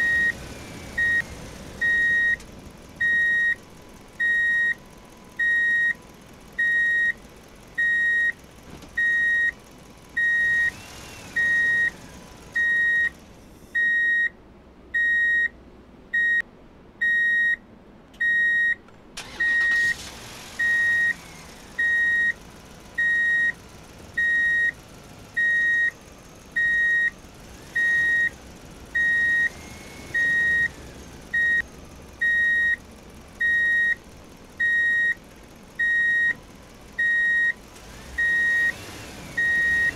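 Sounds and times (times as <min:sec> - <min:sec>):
high-pitched warning beeps: 0:06.6 - 0:07.2, 0:09.0 - 0:09.5, 0:33.4 - 0:34.0, 0:34.6 - 0:35.2, 0:35.8 - 0:36.4.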